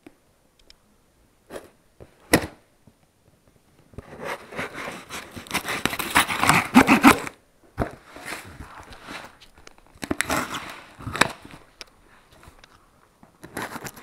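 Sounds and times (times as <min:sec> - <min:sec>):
knife cutting packing tape: 0:04.4 - 0:07.4
plastic wrap and tape tearing: 0:05.0 - 0:07.3.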